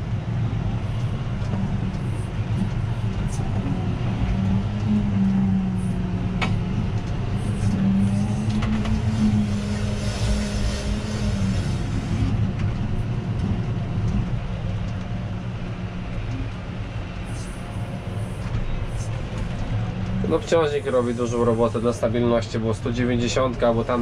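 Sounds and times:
tractor engine running: 0.0 - 24.0.

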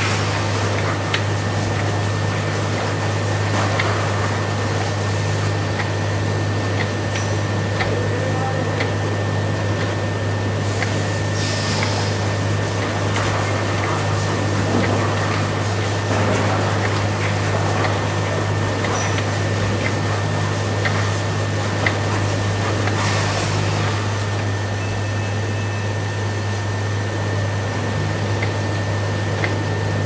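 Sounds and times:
capping machine humming: 0.0 - 30.0
machine light ticks: 6.8 - 7.0.

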